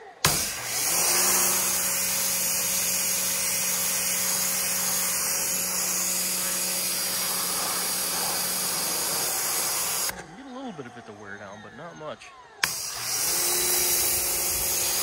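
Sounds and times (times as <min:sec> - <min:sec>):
pressure washer spray hissing: 0:00.2 - 0:10.2, 0:12.6 - 0:15.0
pump humming: 0:00.2 - 0:10.3, 0:12.6 - 0:15.0.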